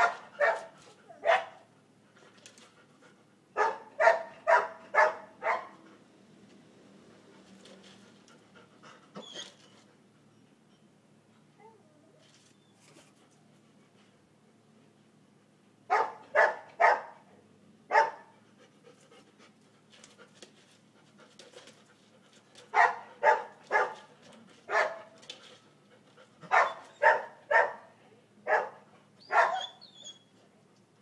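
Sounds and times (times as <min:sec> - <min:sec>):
dog barking: 0:00.0 - 0:01.6, 0:03.6 - 0:05.8, 0:15.9 - 0:17.2, 0:17.9 - 0:18.3, 0:22.7 - 0:24.1, 0:24.7 - 0:25.1, 0:26.5 - 0:27.9, 0:28.5 - 0:29.8.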